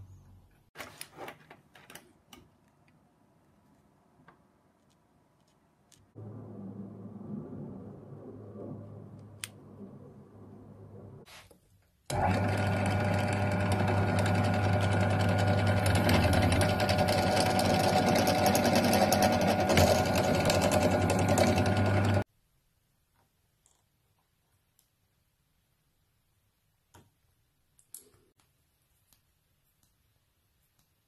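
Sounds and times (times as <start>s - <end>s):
drill press drilling into plastic: 12.1s - 22.2s.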